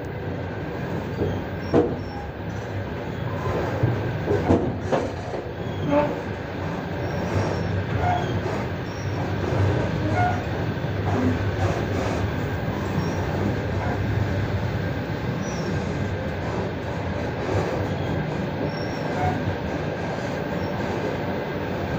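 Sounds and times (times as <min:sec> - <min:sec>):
train wheels rumbling on rails: 0:00.0 - 0:21.9.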